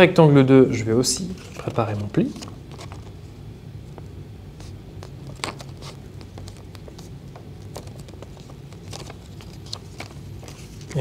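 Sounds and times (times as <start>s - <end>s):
steady low hum: 0.0s - 11.0s
paper crackling and scraping: 1.2s - 3.3s, 4.6s - 11.0s.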